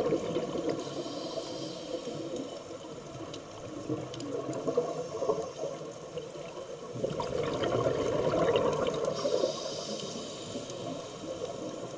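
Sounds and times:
underwater bubbling: 0:00.0 - 0:11.9
hiss: 0:00.5 - 0:02.7, 0:09.0 - 0:11.9.

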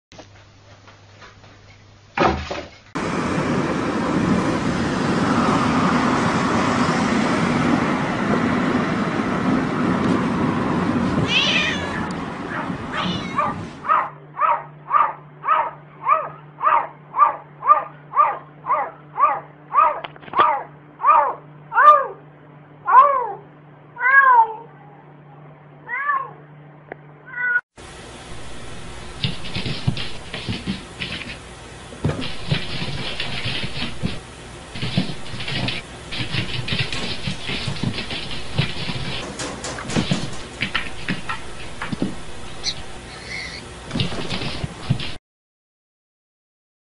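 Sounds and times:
loud steady rushing noise: 0:03.0 - 0:13.9, 0:28.2 - 0:43.1
cat meowing: 0:11.2 - 0:13.6, 0:24.0 - 0:24.7.

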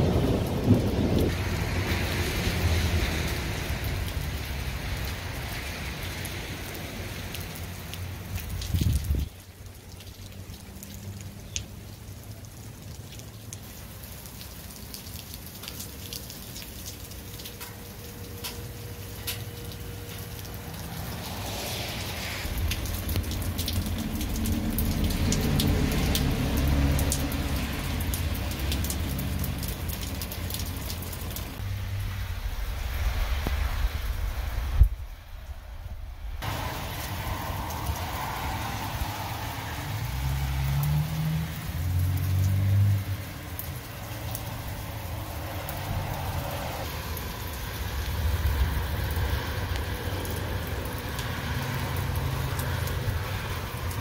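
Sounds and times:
wind rumble on microphone: 0:00.0 - 0:05.7, 0:08.4 - 0:09.4, 0:31.6 - 0:40.6
rain pattering: 0:00.0 - 0:54.0.

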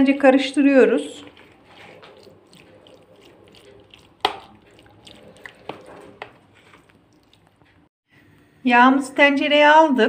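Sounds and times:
wet squishing of stirred liver: 0:00.6 - 0:07.9.

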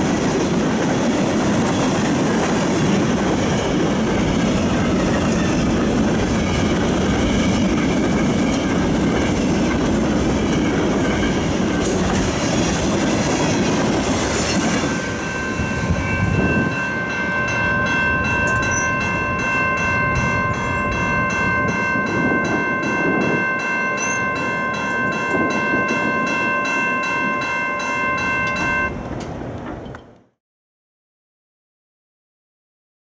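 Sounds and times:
train wheel clatter: 0:00.0 - 0:27.6
freight train rumbling past: 0:00.0 - 0:30.1
crossing signal bell ringing: 0:03.2 - 0:12.2, 0:14.6 - 0:29.0.

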